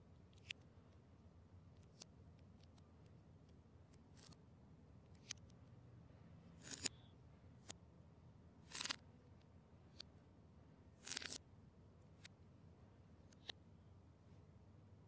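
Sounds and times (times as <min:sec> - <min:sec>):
plastic bricks clicking: 0:08.7 - 0:09.0, 0:11.0 - 0:11.4.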